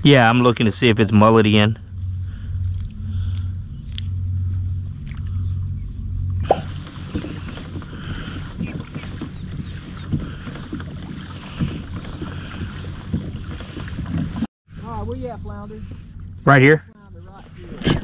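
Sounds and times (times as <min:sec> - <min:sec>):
faint high whine: 0:00.0 - 0:18.0
water and wind noise: 0:00.0 - 0:18.0.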